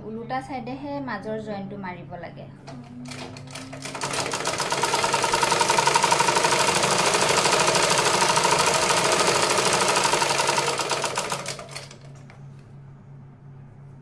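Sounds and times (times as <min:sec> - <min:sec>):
sewing machine stitching: 0:02.7 - 0:12.2.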